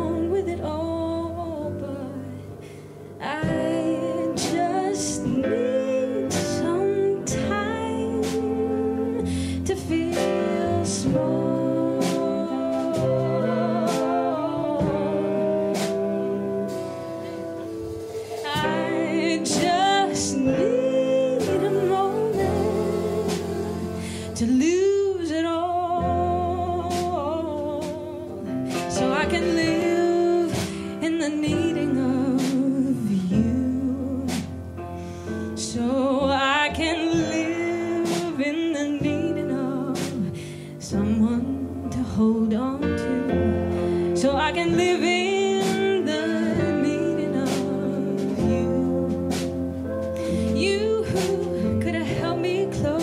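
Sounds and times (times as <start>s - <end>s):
jazz band playing: 0.0s - 53.0s
light drum strokes: 2.6s - 42.7s
saxophone lead melody: 3.4s - 25.2s.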